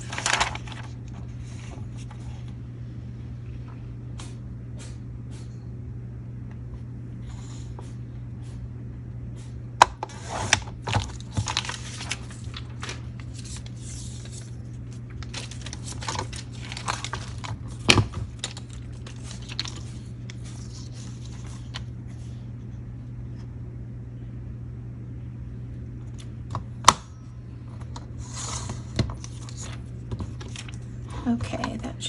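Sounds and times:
plastic sheet crinkling: 0.0 - 2.2, 10.5 - 21.9, 29.2 - 31.0
steady low hum: 0.0 - 32.0.

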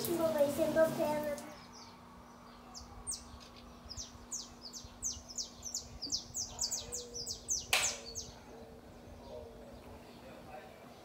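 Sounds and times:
small bird chirping: 1.5 - 8.4.

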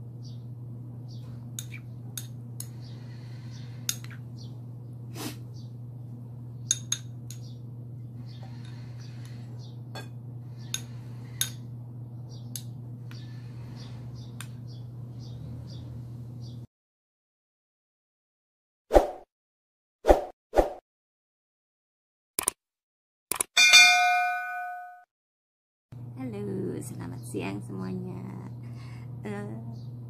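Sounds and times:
steady low hum: 0.0 - 16.7, 26.0 - 30.0.

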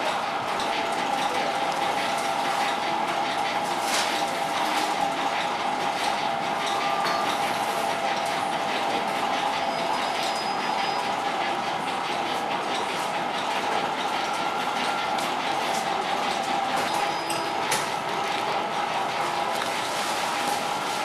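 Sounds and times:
bakery machinery clattering: 0.0 - 21.0
machinery hum: 0.0 - 21.0.

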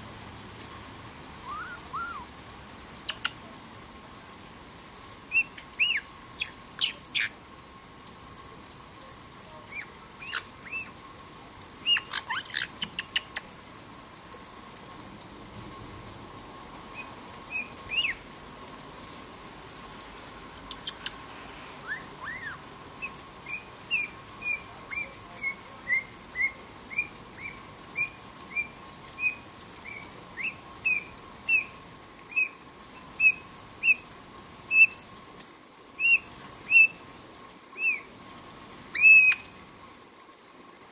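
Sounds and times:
parrot clicking chatter: 3.1 - 3.4, 11.9 - 13.5, 20.7 - 21.2
parrot chirping: 5.3 - 7.3, 20.7 - 21.2.

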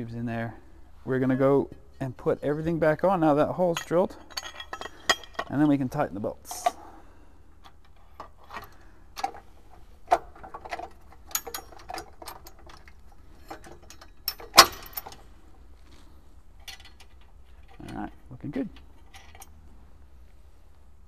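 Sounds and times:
metallic clicks of bolts and nuts: 3.7 - 5.8, 7.6 - 15.3, 16.6 - 19.6.

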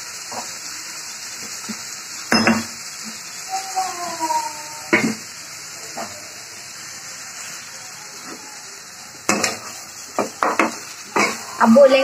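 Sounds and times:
food sizzling in a pan: 0.0 - 12.0
spatula knocking and scraping pan: 9.3 - 11.5.

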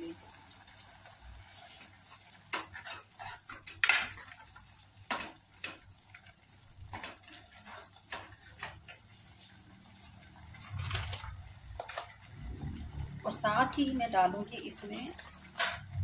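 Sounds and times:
ladle scraping a metal pot: 2.5 - 4.5, 6.9 - 9.5.

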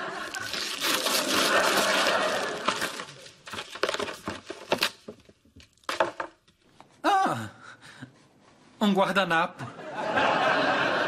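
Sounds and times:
wrapping paper tearing and crinkling: 0.1 - 5.1.

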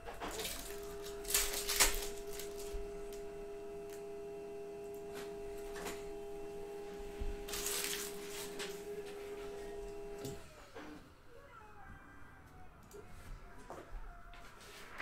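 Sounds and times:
card packaging rustling: 0.0 - 4.1, 7.4 - 10.4.

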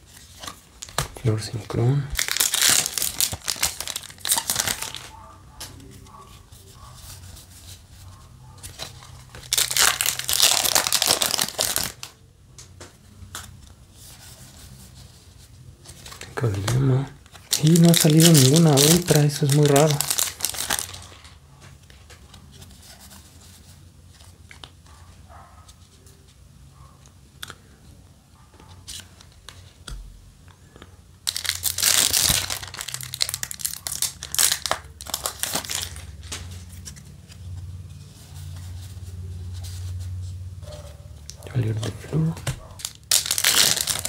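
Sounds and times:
foil wrapper crinkling: 0.2 - 5.1, 8.6 - 12.2, 16.0 - 21.4, 31.2 - 37.0, 41.6 - 44.0.

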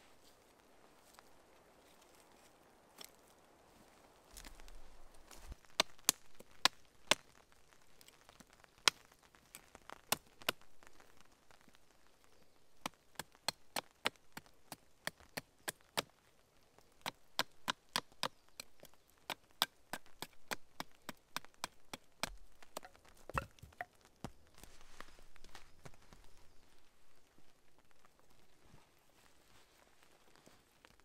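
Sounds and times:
wood cracking and knocking: 17.0 - 24.7.

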